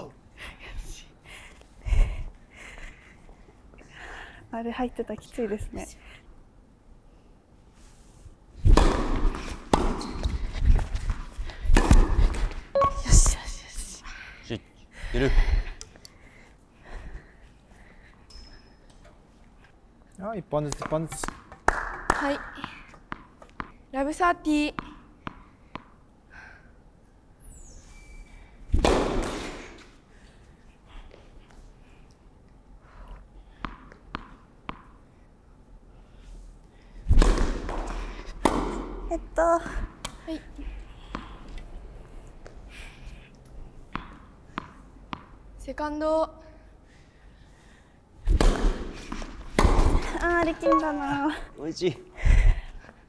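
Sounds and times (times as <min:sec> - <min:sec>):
racket striking ball: 0:08.7 - 0:10.3, 0:11.7 - 0:12.9, 0:20.8 - 0:23.8, 0:37.1 - 0:39.0, 0:48.4 - 0:50.0
tennis ball bouncing: 0:08.7 - 0:13.0, 0:20.6 - 0:26.0, 0:33.6 - 0:35.0, 0:37.1 - 0:39.0, 0:43.9 - 0:45.4, 0:48.4 - 0:51.4.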